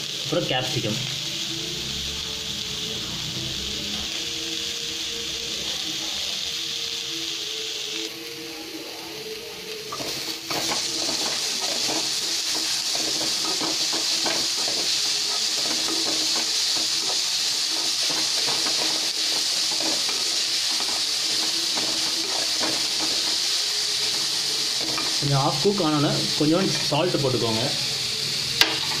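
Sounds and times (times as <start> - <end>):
vegetables sizzling in oil: 0.0 - 29.0
wooden spatula scraping: 9.9 - 25.7.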